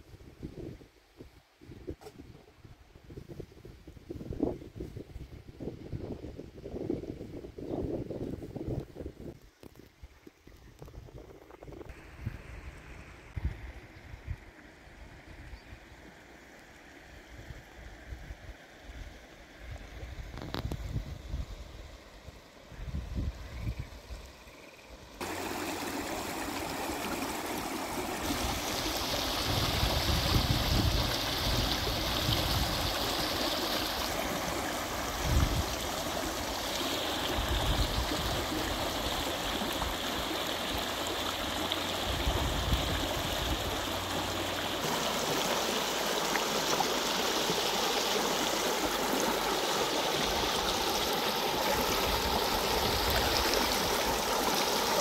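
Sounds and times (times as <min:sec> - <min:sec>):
wind rumble on microphone: 0:00.0 - 0:15.8, 0:19.6 - 0:21.8, 0:22.7 - 0:24.2, 0:28.2 - 0:33.4, 0:34.9 - 0:36.4, 0:37.2 - 0:39.2, 0:41.8 - 0:44.4
stream water running: 0:09.5 - 0:55.0.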